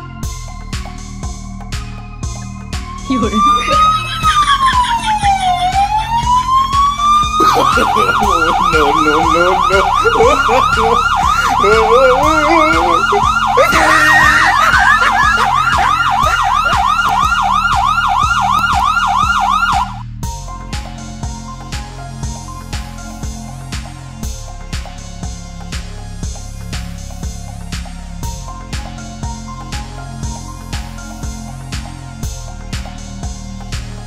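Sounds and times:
electronic police siren: 0:02.3 - 0:20.1.

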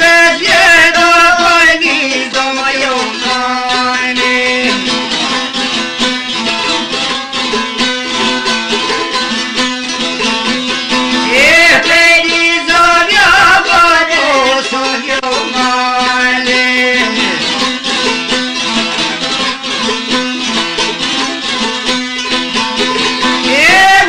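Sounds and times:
person singing ornamented phrase: 0:00.0 - 0:04.9, 0:11.3 - 0:17.4, 0:23.5 - 0:24.0
plucked lute over drone: 0:00.0 - 0:24.0.

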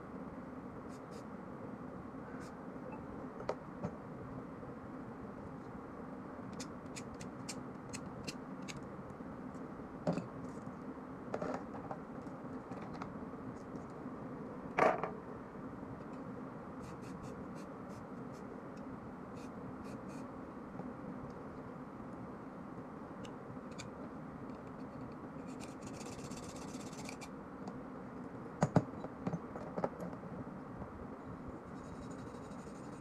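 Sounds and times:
low background hum: 0:00.0 - 0:33.0.

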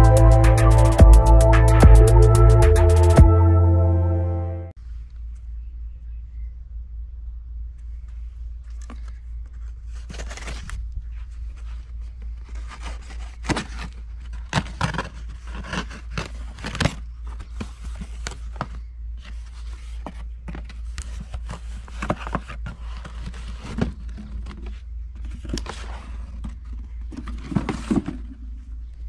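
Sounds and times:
cardboard flaps scraping: 0:08.9 - 0:28.6.

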